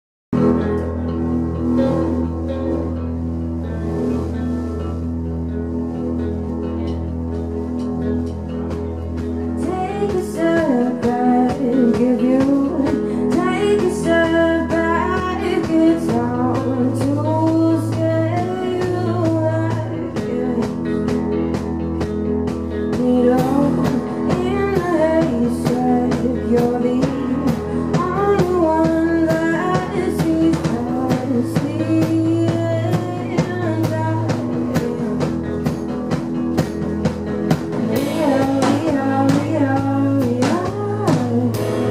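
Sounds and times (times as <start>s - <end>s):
steady drum beat: 7.4s - 41.9s
woman singing: 9.4s - 21.8s, 22.7s - 36.3s, 37.7s - 41.9s.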